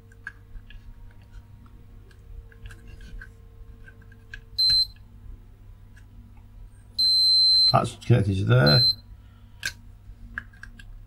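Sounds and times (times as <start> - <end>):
multimeter short high beep: 4.6 - 5.0, 7.0 - 7.8, 8.6 - 9.1.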